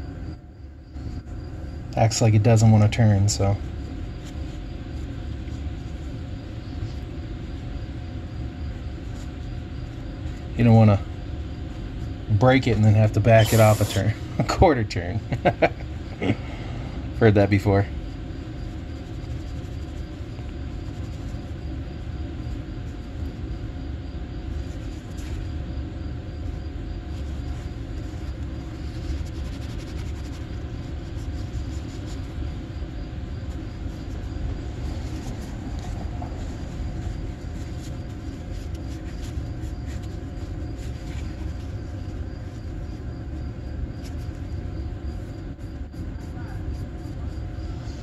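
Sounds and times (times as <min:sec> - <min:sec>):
faint steady hum: 0:00.0 - 0:48.0
low background rumble: 0:14.0 - 0:48.0.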